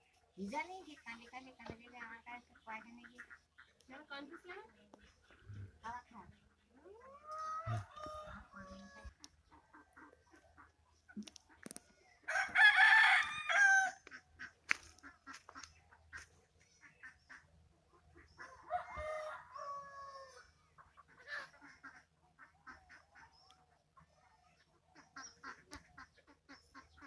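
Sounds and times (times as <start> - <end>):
rooster crowing: 7.2 - 9.1, 12.3 - 14.1, 18.6 - 20.4.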